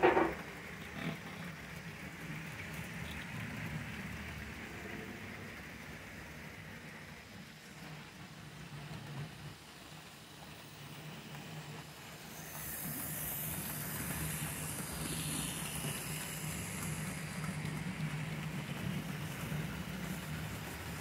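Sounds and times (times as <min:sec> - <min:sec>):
model train motor hum: 0:00.0 - 0:21.0
wheels running on rails: 0:00.0 - 0:21.0
high hiss: 0:10.4 - 0:21.0.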